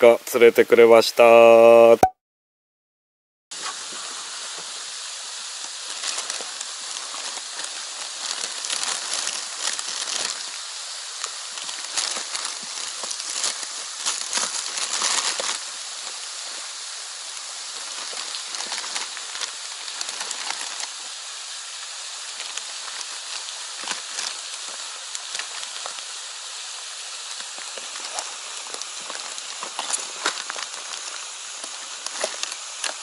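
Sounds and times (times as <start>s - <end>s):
steady hiss: 0.0s - 2.0s, 3.5s - 33.0s
plastic bags crinkling: 5.8s - 10.6s, 11.2s - 16.6s, 17.7s - 21.0s, 22.3s - 26.0s, 27.3s - 33.0s.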